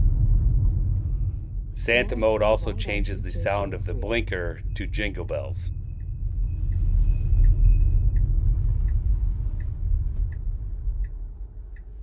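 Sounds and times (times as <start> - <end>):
tyre and road rumble on snow: 0.0 - 1.4
bell-like ringing: 4.5 - 8.2
turn signal jingle-bell click: 4.7 - 9.7.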